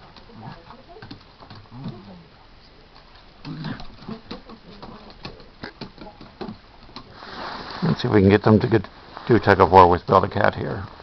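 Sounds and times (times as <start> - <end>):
dog low vocal sound: 3.4 - 4.2.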